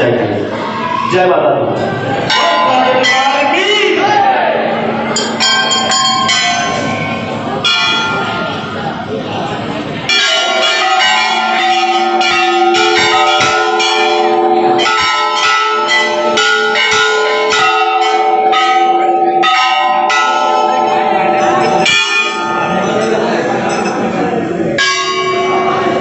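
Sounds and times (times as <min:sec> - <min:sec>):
crowd chatter: 0:00.0 - 0:26.0
temple bells ringing: 0:02.2 - 0:04.1, 0:04.8 - 0:26.0.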